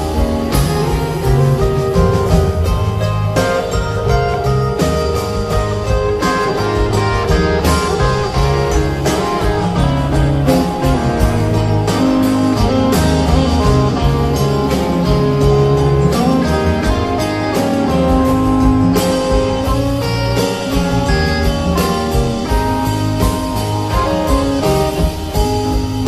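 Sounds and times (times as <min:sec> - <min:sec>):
live band playing instrumental: 0:00.0 - 0:26.0.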